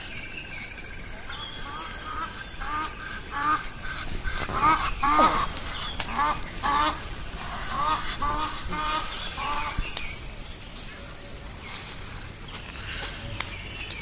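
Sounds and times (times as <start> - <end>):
geese honking: 1.3 - 9.9.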